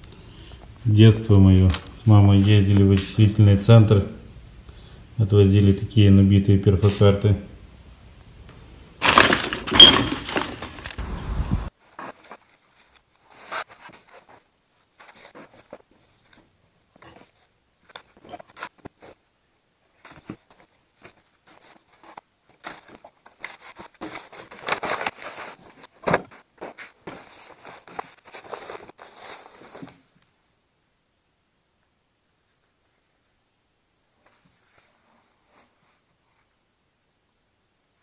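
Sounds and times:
paper and cardboard rustling: 9.0s - 11.0s, 11.8s - 19.2s, 19.9s - 30.1s.

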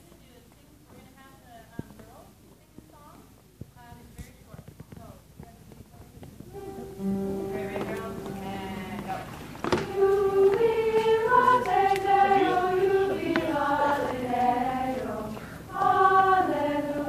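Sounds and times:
choir singing: 6.6s - 17.0s.

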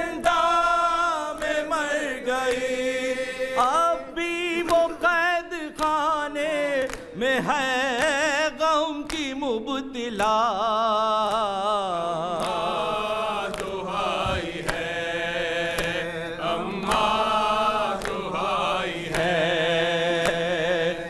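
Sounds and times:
man singing a mourning lament: 3.5s - 12.6s.

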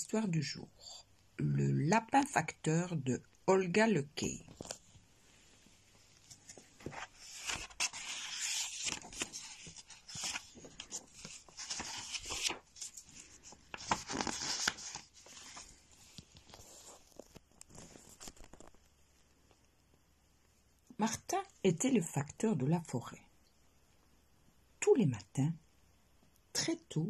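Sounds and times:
paper pages rustling: 4.5s - 5.0s, 5.9s - 18.9s.

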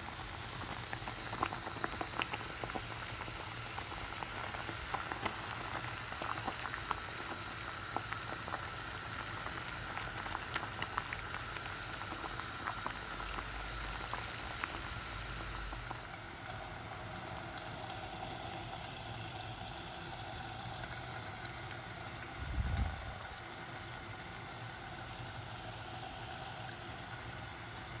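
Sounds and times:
curry bubbling in metal pot: 0.0s - 28.0s.

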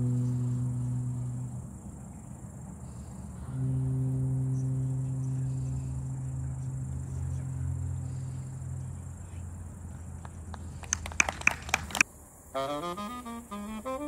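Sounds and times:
low held note: 0.0s - 10.8s
crickets chirring: 0.0s - 14.0s.

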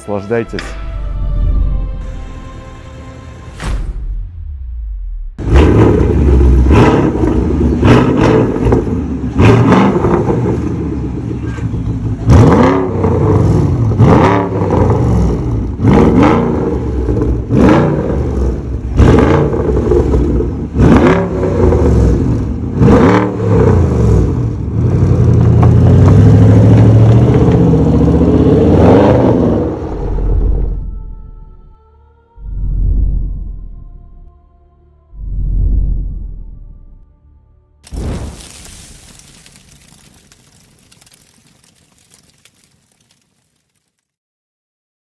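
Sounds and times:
car engine revving: 4.3s - 30.6s
car pulling away: 5.4s - 30.8s.

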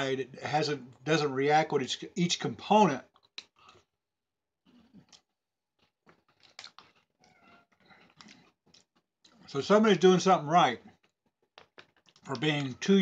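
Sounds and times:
person chewing crunchy cookies: 3.0s - 4.0s, 4.7s - 9.5s, 10.8s - 12.5s.

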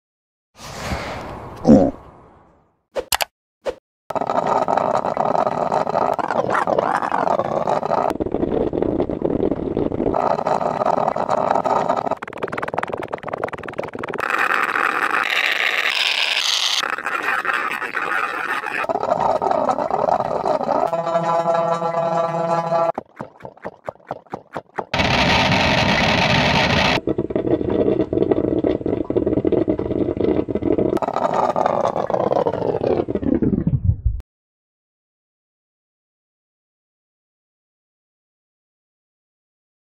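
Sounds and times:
processed coffee maker brewing: 4.1s - 33.2s
coffee maker hissing: 25.0s - 28.4s.

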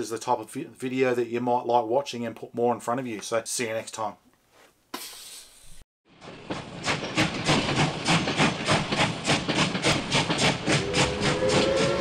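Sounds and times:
steam locomotive chuffing: 6.1s - 12.0s
steam whistle blowing: 10.7s - 12.0s.

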